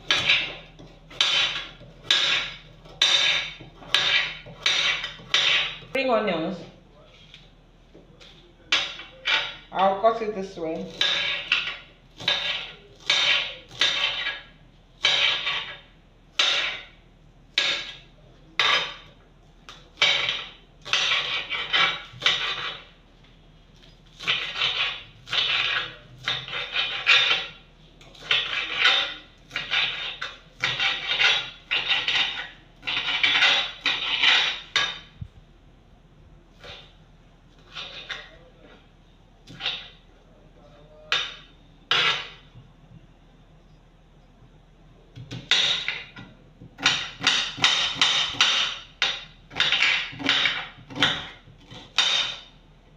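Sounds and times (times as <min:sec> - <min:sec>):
knife chopping on cutting board: 0:00.0 - 0:06.0, 0:10.9 - 0:15.8, 0:18.6 - 0:19.1, 0:19.7 - 0:22.9, 0:24.2 - 0:35.1, 0:41.2 - 0:42.4, 0:45.2 - 0:52.4.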